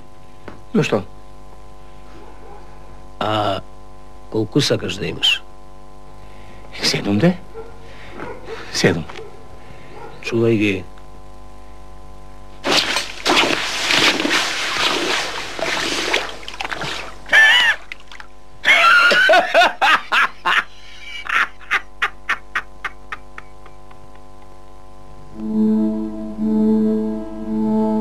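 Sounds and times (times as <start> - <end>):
man laughing heartily: 17.3 - 17.8, 18.6 - 24.3.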